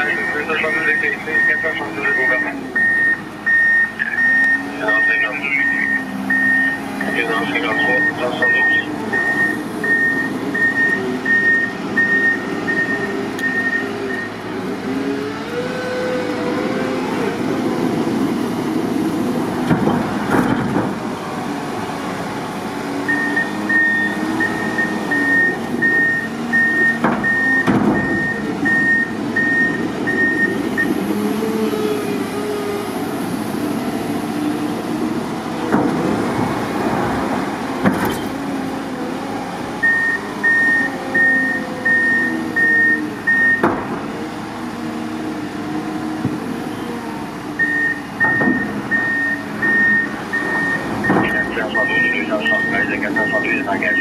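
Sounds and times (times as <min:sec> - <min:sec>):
reversing alarm beeping: 0:00.0 - 0:14.4, 0:23.1 - 0:31.0, 0:39.8 - 0:43.7, 0:47.6 - 0:54.0
diesel engine revving: 0:00.0 - 0:54.0.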